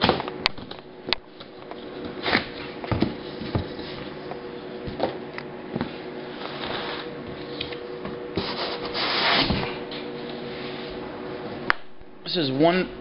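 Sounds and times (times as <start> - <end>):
steady hum: 0.0 - 13.0
cardboard and paper rubbing: 8.4 - 9.7.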